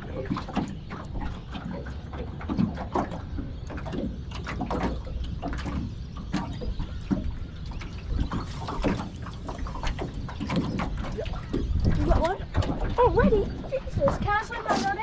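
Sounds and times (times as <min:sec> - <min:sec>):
waves slapping metal hull: 0:00.0 - 0:15.0
wind rumble on microphone: 0:00.0 - 0:15.0.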